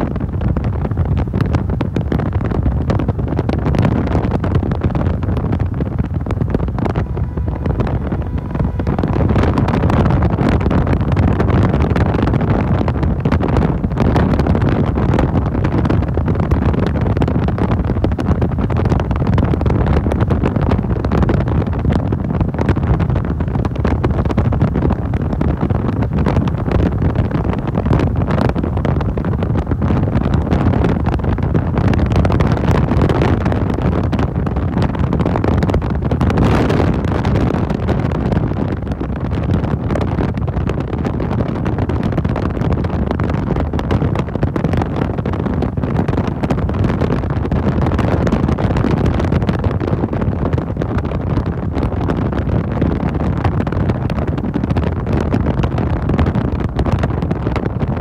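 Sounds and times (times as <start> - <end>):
wind buffeting microphone: 0.0 - 58.0
motorcycle engine: 5.1 - 11.6.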